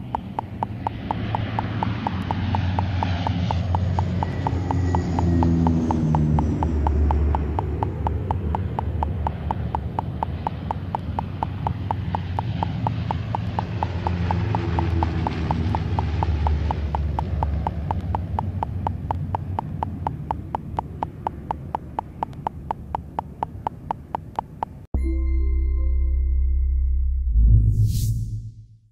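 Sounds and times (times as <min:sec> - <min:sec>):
steady ticking: 0:00.0 - 0:24.9
turboprop aircraft droning: 0:00.0 - 0:24.9
electronic music jingle: 0:25.0 - 0:28.6.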